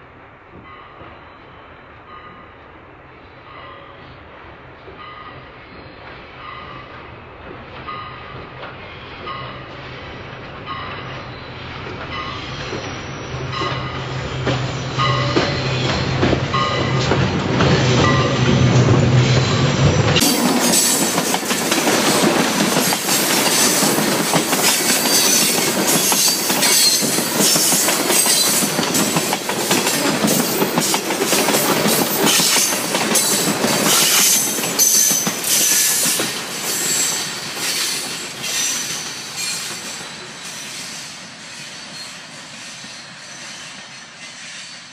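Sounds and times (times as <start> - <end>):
high wheel squeal: 11.3 - 17.0, 25.0 - 28.8, 32.3 - 44.9
train wheels clattering: 11.9 - 44.8.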